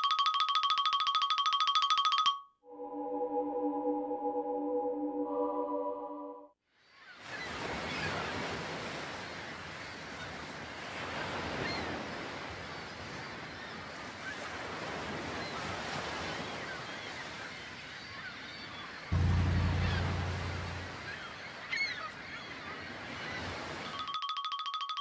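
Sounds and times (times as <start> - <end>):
waves breaking: 7.2 - 17.6, 19.2 - 21.4.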